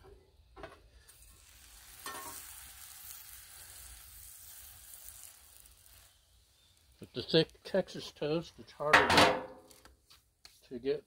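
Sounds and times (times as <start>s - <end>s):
bread sizzling on griddle: 0.8s - 8.5s.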